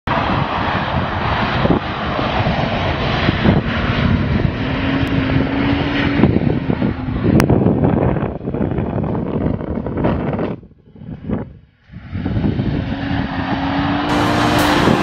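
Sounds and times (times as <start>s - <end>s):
car engine revving hard: 14.1s - 15.0s.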